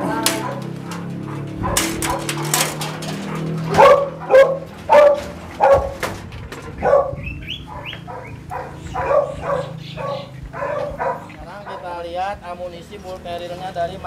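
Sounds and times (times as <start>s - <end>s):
dog barking: 0.3s - 6.0s, 6.8s - 12.0s
dog whining: 6.8s - 11.4s.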